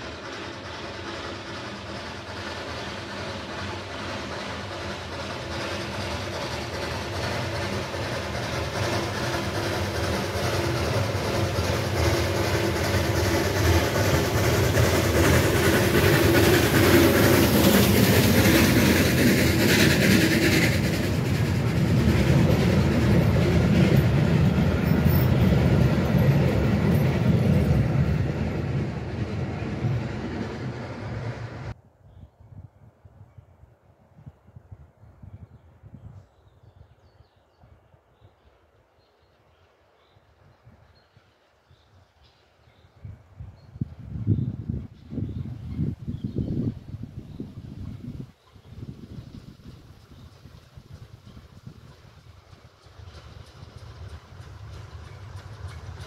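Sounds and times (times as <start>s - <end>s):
steam train passing: 0.0s - 31.8s, 37.1s - 56.0s
wheels running on rails: 0.0s - 31.8s, 49.1s - 56.0s.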